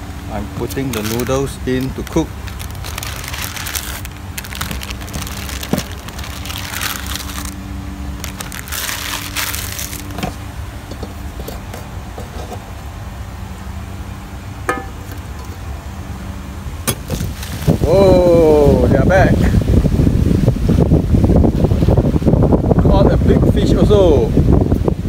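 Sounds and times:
steady low rumble: 0.0 - 25.0
foil wrapper rustling and crackling: 0.6 - 11.7, 17.0 - 18.8.

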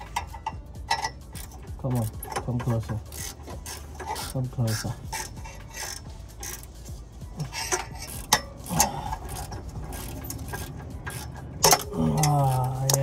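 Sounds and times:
metal clicks and knocks: 0.0 - 4.2, 7.4 - 13.0.

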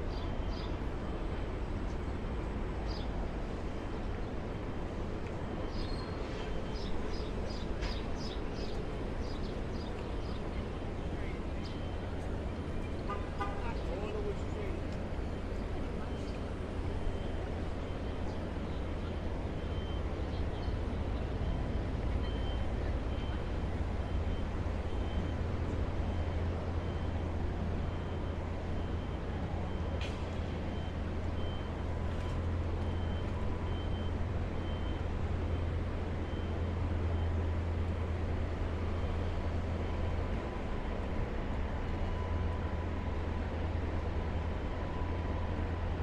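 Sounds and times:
street traffic rumble: 0.0 - 46.0
faint high beep: 15.3 - 25.4, 27.9 - 37.4.

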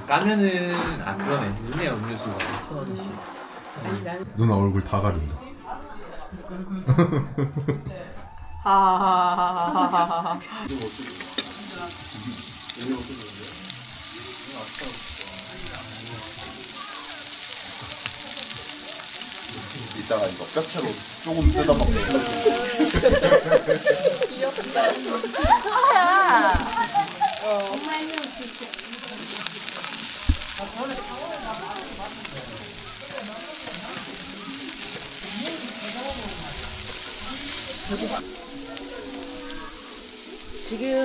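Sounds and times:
person laughing: 8.8 - 10.5, 22.0 - 27.6
meat sizzling on a grill: 10.7 - 41.0
voices: 10.8 - 41.0.

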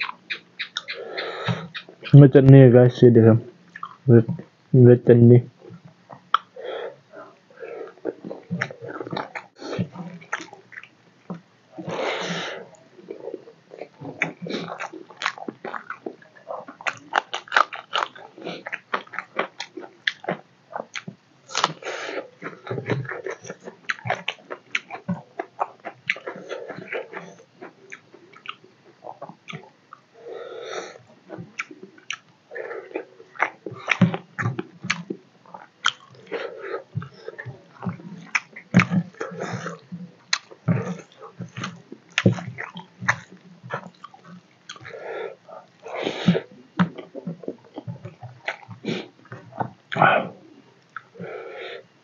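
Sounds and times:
lip smacks and mouth clicks: 0.0 - 2.1, 3.7 - 4.0, 6.1 - 6.5
wet chewing: 0.0 - 2.2, 3.7 - 4.1, 6.1 - 30.0, 30.7 - 51.6.

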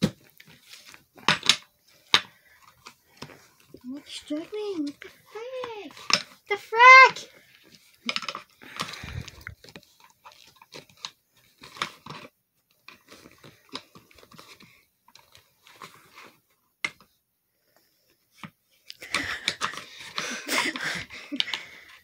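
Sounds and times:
hands rustling: 0.0 - 12.2.

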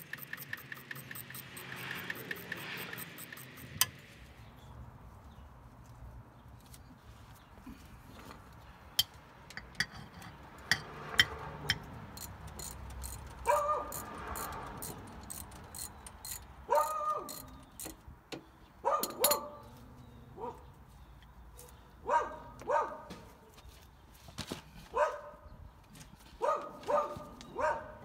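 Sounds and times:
metal hand tools clicking: 0.0 - 4.0, 9.7 - 18.0
dog barking: 13.4 - 14.0, 16.7 - 17.3, 18.8 - 19.7, 20.4 - 20.7, 21.6 - 23.2, 24.9 - 25.5, 26.4 - 28.0.

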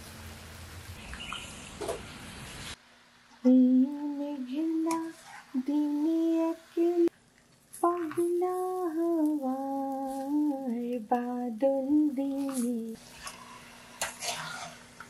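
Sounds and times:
steady rain: 0.0 - 2.8
person humming a slow tune: 3.4 - 7.1, 7.8 - 13.0.

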